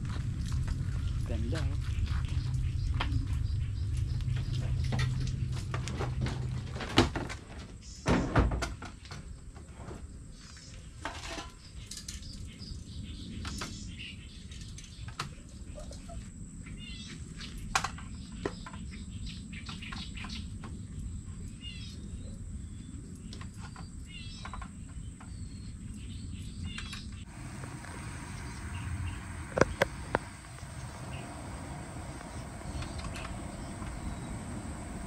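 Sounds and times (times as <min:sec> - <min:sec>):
low hum: 0:00.0 - 0:06.7, 0:27.2 - 0:35.0
birds chirping: 0:00.2 - 0:05.8, 0:11.6 - 0:35.0
high insect drone: 0:27.3 - 0:35.0.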